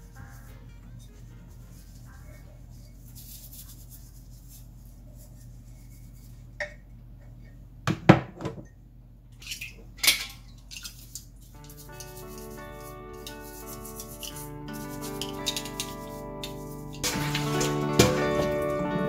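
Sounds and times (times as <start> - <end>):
background music: 0.0 - 2.7, 11.6 - 19.0
crockery clinking in a steel sink: 9.4 - 11.0, 14.0 - 18.9.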